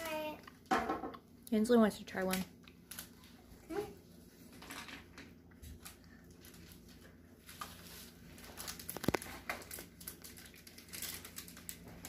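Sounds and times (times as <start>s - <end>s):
wrapper crinkling and tearing: 2.8s - 3.4s, 5.8s - 12.0s.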